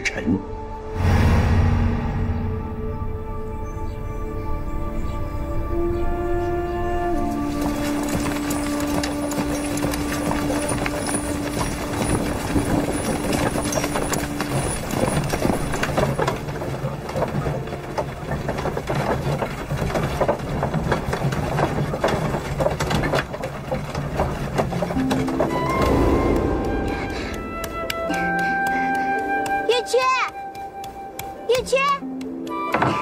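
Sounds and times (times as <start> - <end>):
horse hooves clip-clopping: 5.8 - 33.0
carriage clattering: 7.3 - 26.0.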